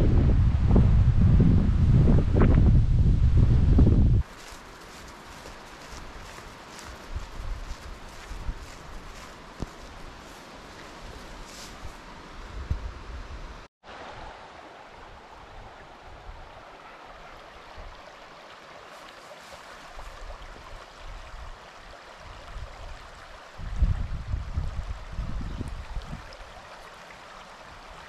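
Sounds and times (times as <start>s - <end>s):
wind rumbling on microphone: 0.0s - 14.4s, 22.2s - 26.6s.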